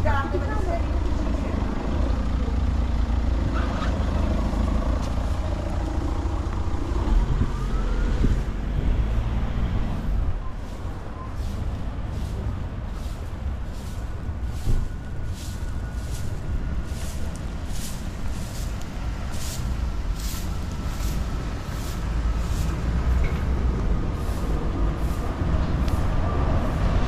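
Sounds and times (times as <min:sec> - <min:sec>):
car driving over cobblestones: 0:00.8 - 0:10.5
broom sweeping pavement: 0:09.8 - 0:27.0.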